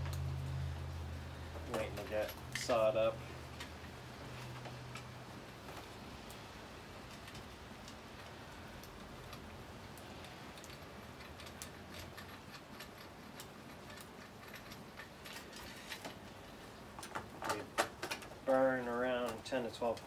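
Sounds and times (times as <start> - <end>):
plastic parts and chain rattling: 7.0 - 20.0.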